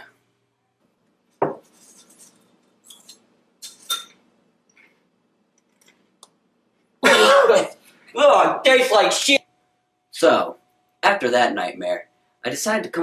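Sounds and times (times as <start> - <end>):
spoon clinking and scraping in bowl: 1.6 - 4.2.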